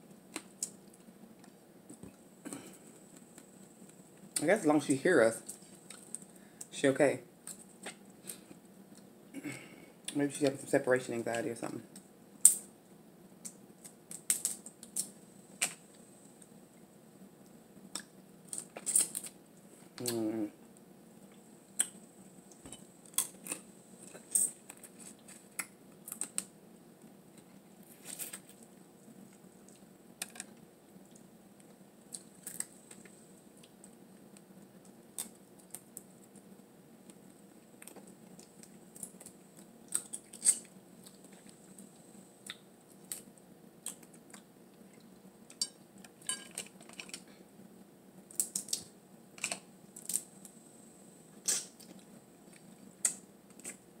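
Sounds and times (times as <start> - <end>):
eating clicks and smacks: 17.9 - 19.4, 21.8 - 23.6, 24.2 - 26.5, 37.8 - 41.6, 42.4 - 45.8, 48.3 - 50.3, 51.4 - 53.8.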